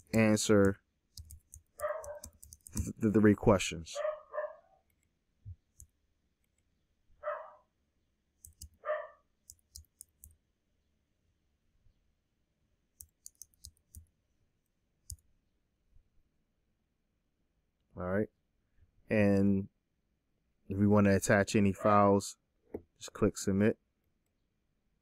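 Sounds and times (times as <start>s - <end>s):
computer keyboard typing: 0.0s - 3.0s, 8.4s - 8.8s, 9.5s - 10.3s, 13.0s - 14.1s
dog barks: 1.8s - 2.2s, 4.0s - 4.7s, 7.2s - 7.6s, 8.8s - 9.2s.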